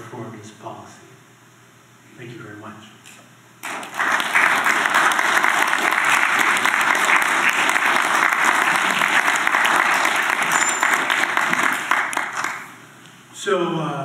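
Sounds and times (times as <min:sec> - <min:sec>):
audience applauding: 0:03.6 - 0:12.8.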